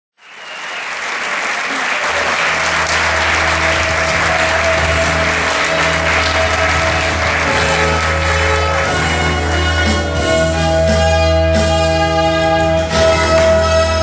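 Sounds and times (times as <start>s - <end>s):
audience applauding: 0.2s - 10.2s
band music: 1.7s - 14.0s.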